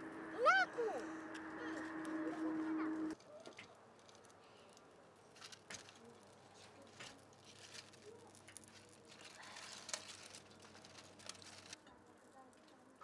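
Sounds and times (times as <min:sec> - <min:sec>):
dry leaves crackling in fire: 0:00.0 - 0:13.0
leaves rustling: 0:05.3 - 0:11.8.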